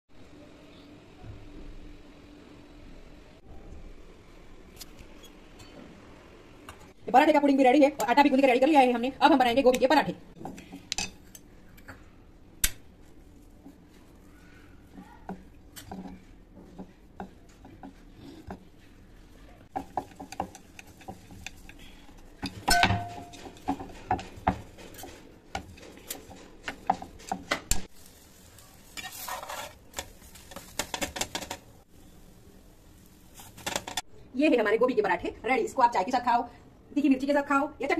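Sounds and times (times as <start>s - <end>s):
steel utensils clinking: 19.8s - 27.9s
bread sizzling on griddle: 26.9s - 34.0s.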